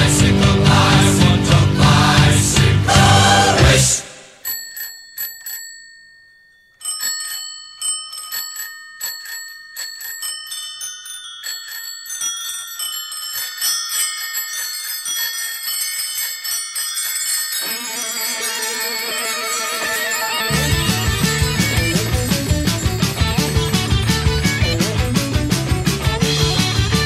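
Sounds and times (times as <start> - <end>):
music track: 0.0 - 4.4, 17.6 - 27.0
bicycle bells ringing: 4.3 - 27.0.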